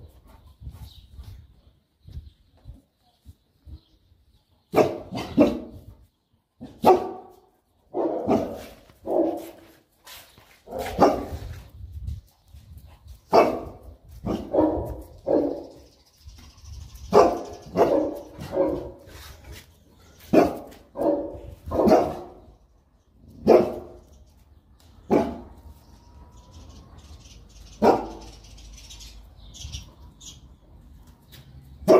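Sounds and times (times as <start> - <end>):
dogs barking deeply: 4.6 - 6.0, 6.6 - 9.8, 10.6 - 11.7, 13.2 - 16.0, 17.0 - 19.2, 20.0 - 24.1, 25.0 - 25.6, 27.7 - 28.5.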